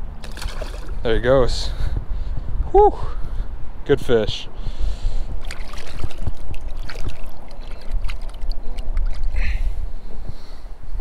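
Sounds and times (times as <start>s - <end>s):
hands splashing in water: 0.2s - 1.0s, 5.4s - 9.4s
water dripping: 5.4s - 9.3s.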